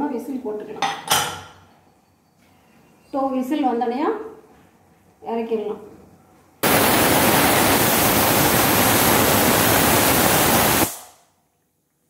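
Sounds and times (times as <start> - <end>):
pressure cooker whistling: 6.6 - 11.1.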